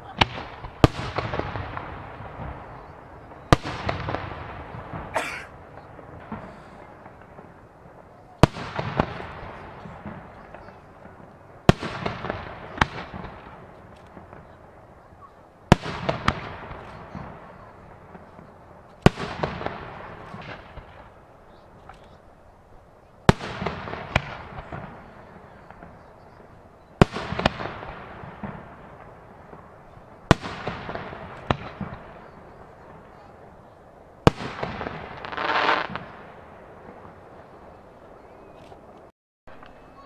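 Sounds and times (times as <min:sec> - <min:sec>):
firework shells booming: 0:00.0 - 0:14.7, 0:27.0 - 0:33.5.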